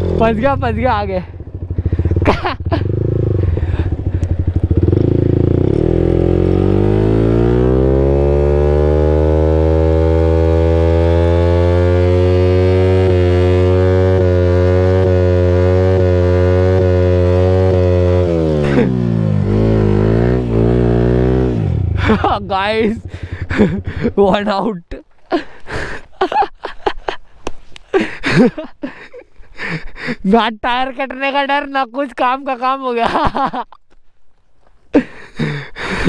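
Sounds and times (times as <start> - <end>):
motorcycle engine revving: 0.0 - 24.6.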